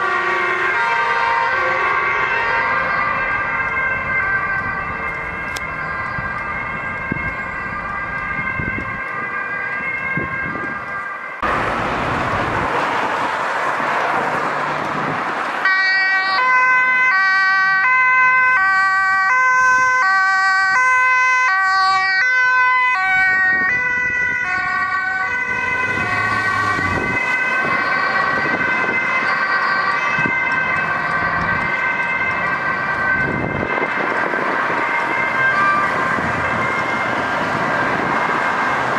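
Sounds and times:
ambulance two-tone siren: 0.0s - 38.9s
road traffic noise: 0.0s - 38.9s
rushing noise: 11.4s - 15.7s.

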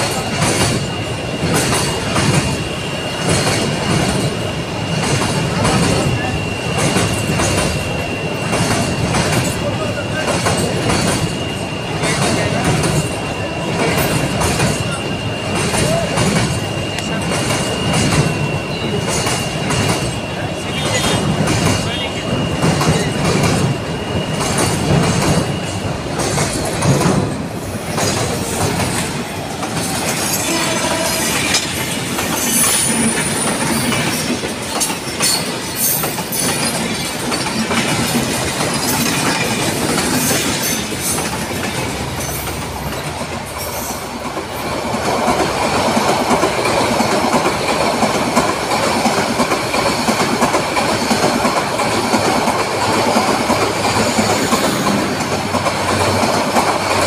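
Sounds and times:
train wheels clacking over rail joints: 0.0s - 57.0s
high wheel squeals: 0.2s - 26.3s, 27.4s - 37.5s.

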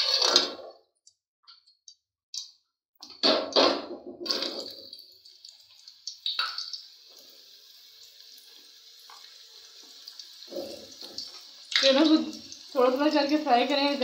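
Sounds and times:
slices sizzling in hot oil: 4.3s - 14.0s.

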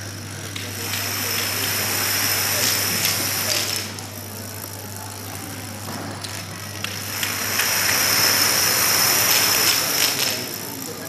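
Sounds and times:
steady low hum: 0.0s - 11.0s
plastic dominoes toppling: 6.3s - 10.5s.

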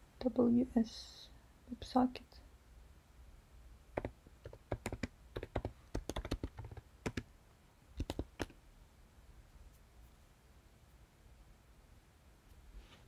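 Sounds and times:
typing on a keyboard: 4.0s - 7.3s, 8.0s - 8.6s.

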